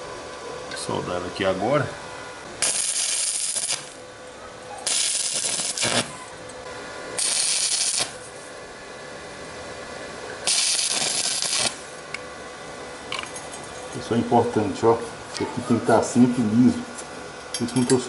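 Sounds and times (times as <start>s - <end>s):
electric arc welding crackle: 2.6s - 4.0s, 4.8s - 6.2s, 7.2s - 8.3s, 10.4s - 12.0s.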